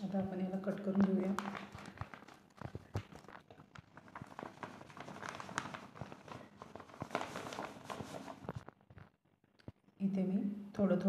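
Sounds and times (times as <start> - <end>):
foil packet crinkling: 0.7 - 9.2.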